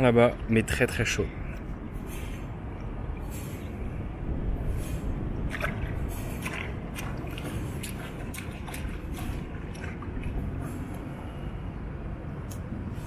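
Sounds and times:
steady low rumble: 0.0 - 13.0
water splashes and drips: 4.8 - 11.6.

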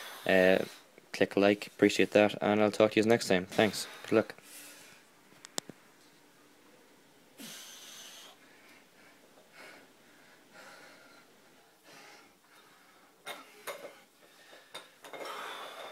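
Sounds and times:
man breathing hard: 0.0 - 0.9, 7.4 - 15.9.

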